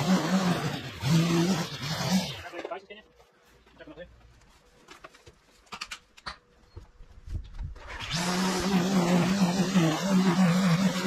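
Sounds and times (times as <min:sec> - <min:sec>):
string trimmer cutting grass: 0:00.0 - 0:02.5, 0:07.8 - 0:11.0.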